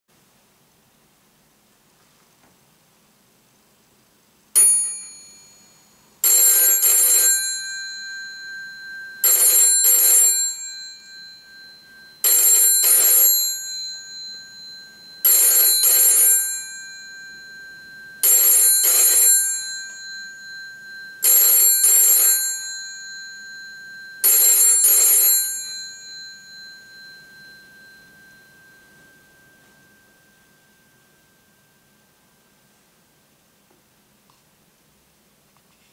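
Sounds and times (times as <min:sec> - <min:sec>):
telephone bell ringing: 0:04.6 - 0:31.8.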